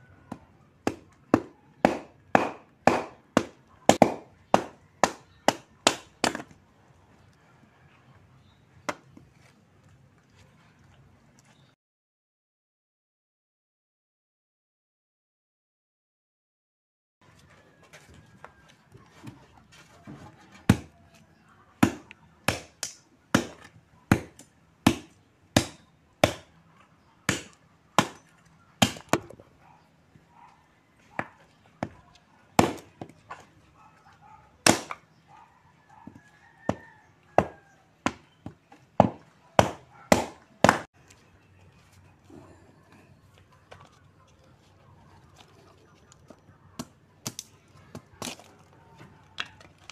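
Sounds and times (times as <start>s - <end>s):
machete chopping firewood: 0.3s - 6.6s, 20.6s - 21.0s, 21.8s - 26.6s, 27.2s - 29.4s, 32.6s - 33.4s, 34.6s - 35.0s, 37.4s - 40.9s, 46.8s - 48.5s.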